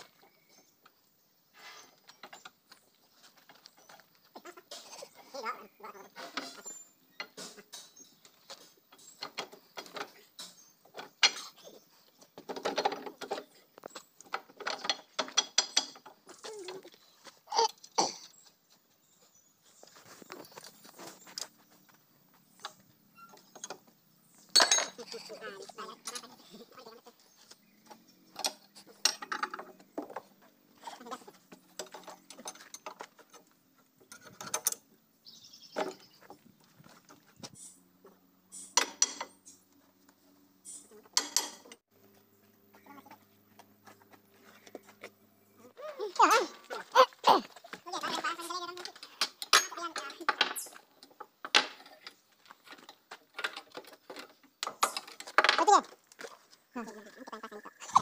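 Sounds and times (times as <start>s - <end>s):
spanner clinking on metal: 24.5s - 25.0s, 49.2s - 50.8s.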